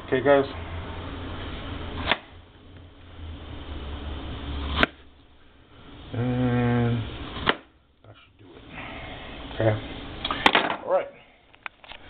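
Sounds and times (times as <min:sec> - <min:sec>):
knife slicing plantain: 0:02.0 - 0:02.3, 0:04.6 - 0:05.0
man humming: 0:06.1 - 0:07.2.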